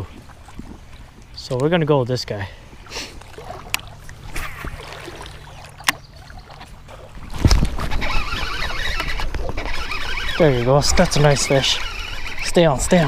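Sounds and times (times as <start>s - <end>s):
rough splashing water: 0.0s - 13.0s
fishing reel cranking: 7.5s - 13.0s
sharp reel clicks: 7.5s - 13.0s.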